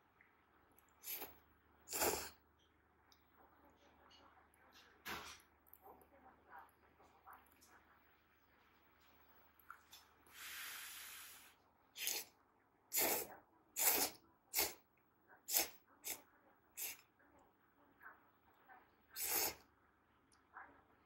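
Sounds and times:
person slurping noodles: 1.0 - 1.3, 1.9 - 2.4, 10.4 - 12.3, 12.9 - 14.8, 15.5 - 15.7, 19.2 - 19.6.

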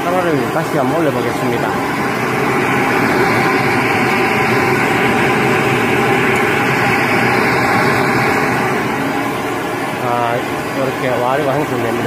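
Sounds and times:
electric blower rushing air: 0.0 - 12.0.

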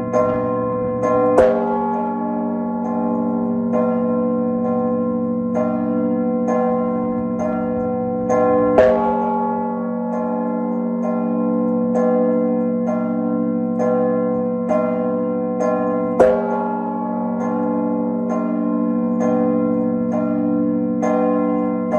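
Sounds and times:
church bells chiming: 0.0 - 21.9.

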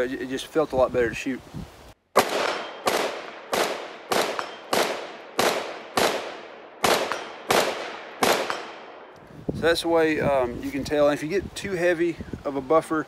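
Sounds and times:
rifle shots with ringing echo: 2.1 - 9.1.

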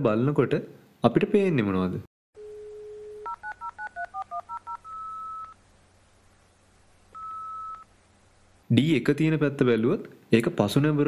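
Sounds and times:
telephone dial tone: 2.4 - 5.6, 7.2 - 7.9
keypad touch-tone beeps: 3.2 - 5.6, 7.2 - 7.8.

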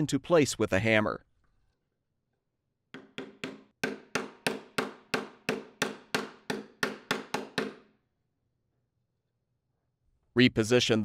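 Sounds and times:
hammer tapping plastic pipe: 2.9 - 7.9.

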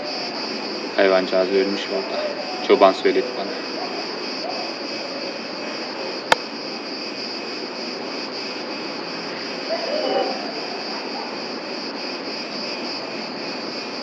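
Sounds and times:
insects chirring: 0.0 - 14.0
sharp click: 6.3 - 6.5.

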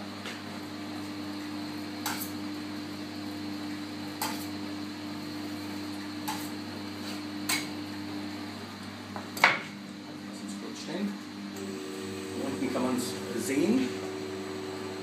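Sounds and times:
machine humming: 9.8 - 15.0.

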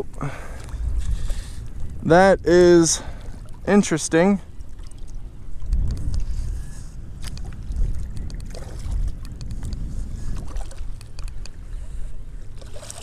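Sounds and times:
wind buffeting microphone: 0.0 - 13.0
water slapping boat hull: 7.2 - 13.0.

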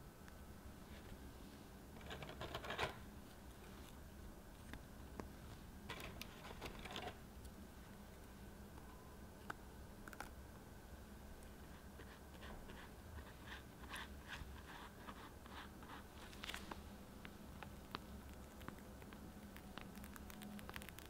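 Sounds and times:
pastry brush dabbing: 11.5 - 21.0.

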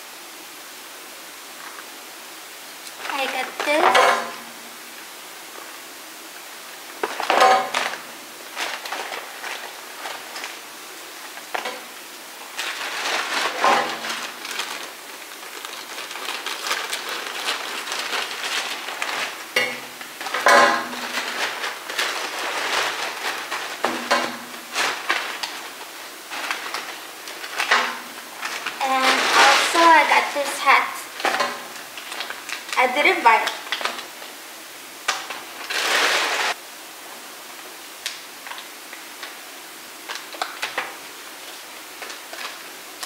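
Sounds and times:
plastic mailer bag crinkling: 3.0 - 3.9, 6.9 - 34.4, 35.2 - 36.6, 40.1 - 43.0.

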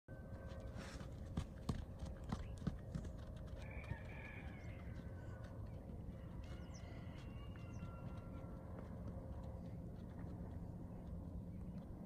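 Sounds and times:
low wind rumble: 0.1 - 12.0
horse hooves on dry dirt: 0.2 - 12.0.

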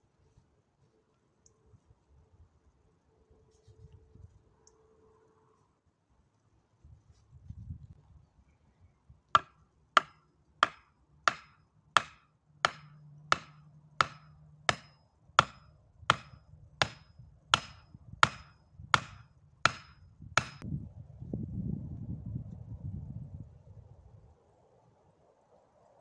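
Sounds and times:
axe knocking on wooden pole: 9.4 - 20.6.

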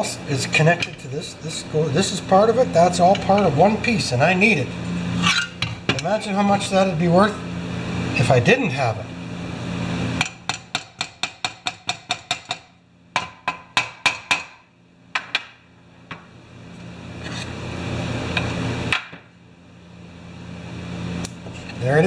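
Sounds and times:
hammer tapping on metal: 10.2 - 14.6.

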